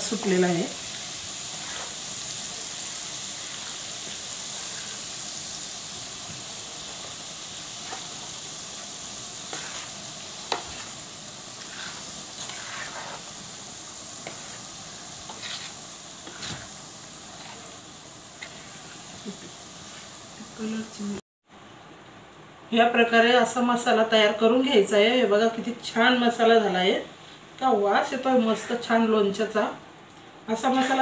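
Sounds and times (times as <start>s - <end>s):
hot oil sizzling: 0.0s - 21.2s, 30.5s - 31.0s
steel spoon scraping a bowl: 9.5s - 11.0s, 11.6s - 13.3s, 15.3s - 16.7s, 17.3s - 17.8s.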